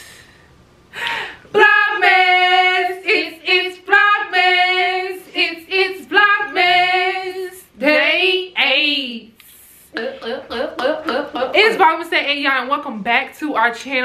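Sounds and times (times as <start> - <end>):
woman singing unaccompanied: 1.5 - 9.3, 10.0 - 12.1.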